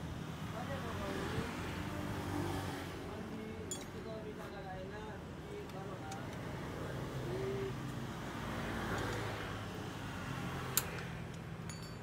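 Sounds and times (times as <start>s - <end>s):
traffic noise: 0.0s - 12.0s
metallic wrench click: 10.7s - 11.8s.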